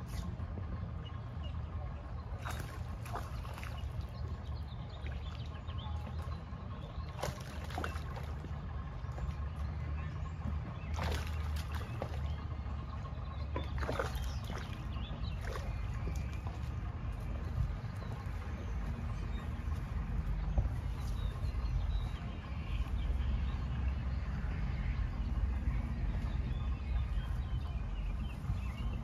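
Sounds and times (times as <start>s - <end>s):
steady low rumble: 0.0s - 29.0s
water splashing: 2.3s - 9.7s, 10.3s - 19.6s.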